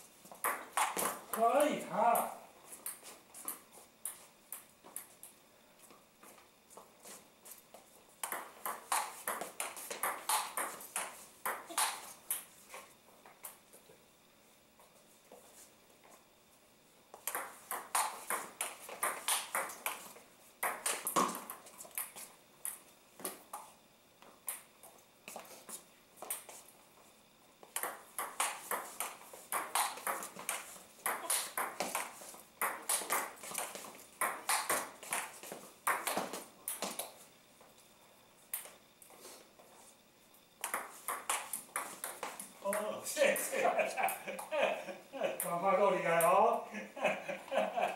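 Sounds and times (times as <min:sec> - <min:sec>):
ping-pong ball hitting paddles: 0:00.4 - 0:01.5, 0:08.2 - 0:12.4, 0:17.2 - 0:20.0, 0:20.6 - 0:22.8, 0:27.7 - 0:37.0, 0:40.6 - 0:42.9
ping-pong ball bouncing on table: 0:08.2 - 0:12.0, 0:17.3 - 0:19.9, 0:27.8 - 0:30.3, 0:31.0 - 0:32.0, 0:32.6 - 0:33.3, 0:34.2 - 0:34.9, 0:35.9 - 0:36.3, 0:40.6 - 0:42.8.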